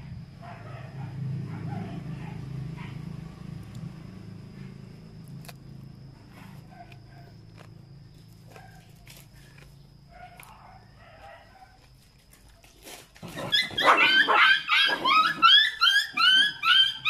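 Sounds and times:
young animal yelping: 0:13.2 - 0:17.0.

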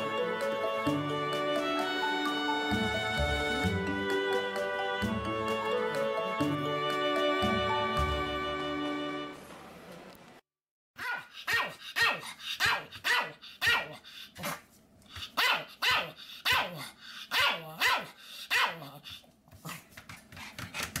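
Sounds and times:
small dog barking: 0:11.0 - 0:14.6, 0:15.4 - 0:19.0.

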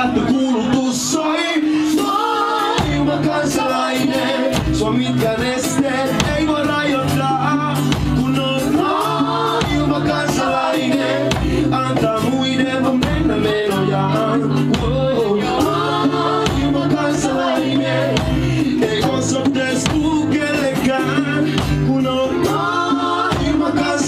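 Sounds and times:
acoustic guitar strumming: 0:00.0 - 0:24.0
man singing: 0:00.0 - 0:24.0.

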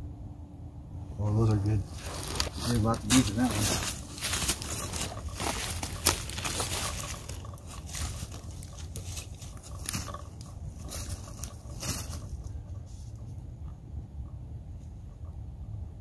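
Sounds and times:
steady low rumble: 0:00.0 - 0:16.0
dry leaves crunching underfoot: 0:01.5 - 0:12.6.

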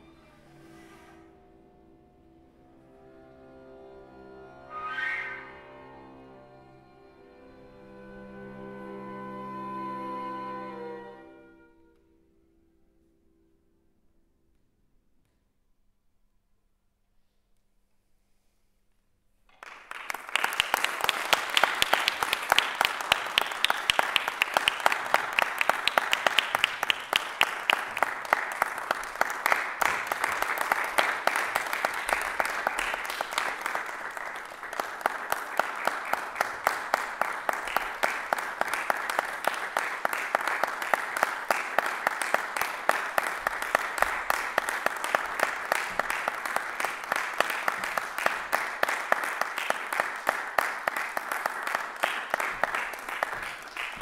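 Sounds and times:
audience applause: 0:19.5 - 0:54.0.

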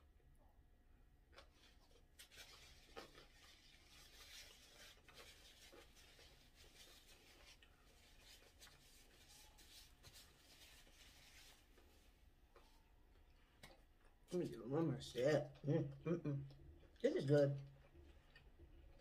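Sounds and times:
paper napkin rustling: 0:01.6 - 0:12.2.

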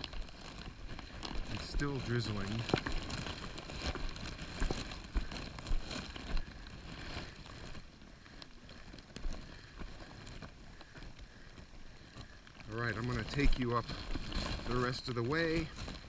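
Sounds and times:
footsteps on wet rock: 0:00.0 - 0:11.4.

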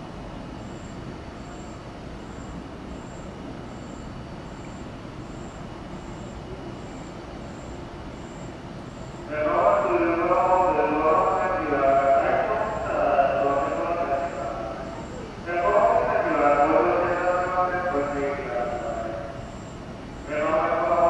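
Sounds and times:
low hum of station platform: 0:00.0 - 0:21.0
public address announcement: 0:08.4 - 0:21.0.

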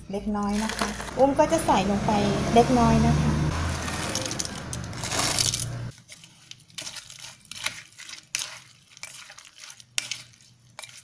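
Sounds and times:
wooden spoon scraping in mortar: 0:00.5 - 0:01.2, 0:03.5 - 0:11.0.

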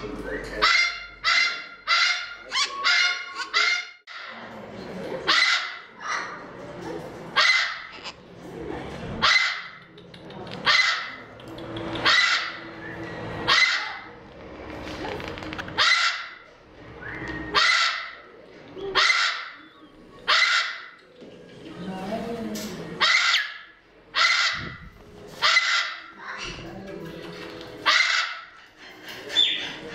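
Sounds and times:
parrot harsh calls: 0:00.6 - 0:04.3, 0:12.0 - 0:12.7, 0:15.8 - 0:16.4, 0:17.5 - 0:18.3, 0:18.9 - 0:21.0, 0:23.0 - 0:24.8, 0:25.4 - 0:26.6, 0:27.8 - 0:28.7.

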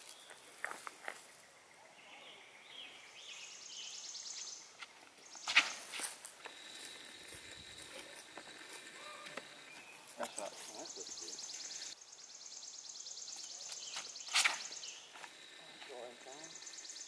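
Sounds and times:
insects buzzing: 0:00.0 - 0:17.0
steady high whine: 0:05.4 - 0:12.0.

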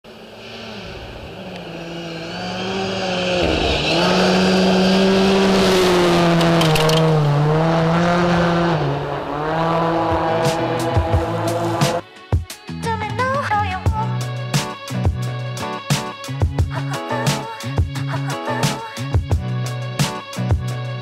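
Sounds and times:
rally car engine at high revs: 0:00.1 - 0:12.0.

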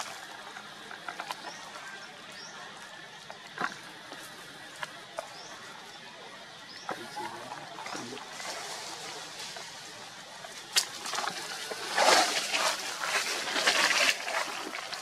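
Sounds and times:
rustling and crunching in dry leaves: 0:07.0 - 0:15.0.

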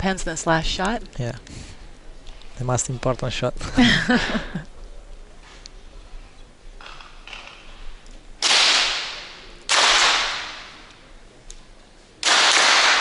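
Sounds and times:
pistol shots echoing: 0:08.4 - 0:10.8, 0:12.2 - 0:13.0.

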